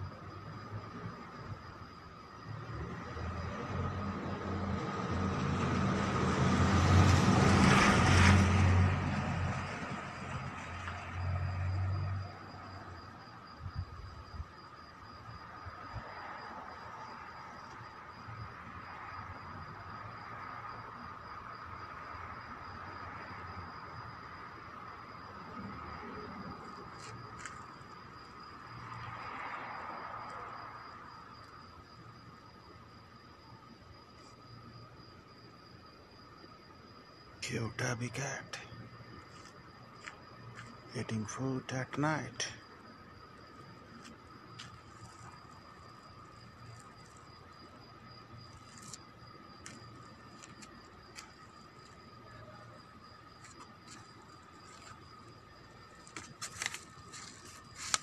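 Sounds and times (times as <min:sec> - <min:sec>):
vehicle passing by: 0:02.6 - 0:12.3
faint ticks: 0:48.5 - 0:52.0.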